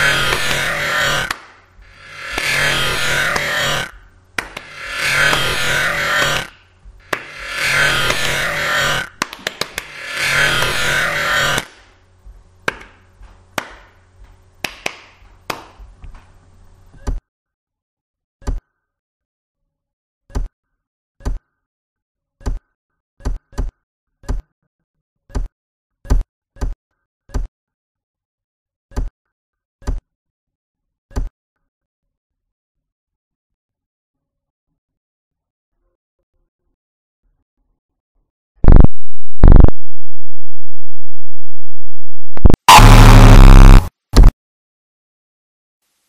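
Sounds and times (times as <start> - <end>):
loud burst of noise: 0.0 - 11.8, 38.6 - 44.3
low hum: 38.6 - 44.3.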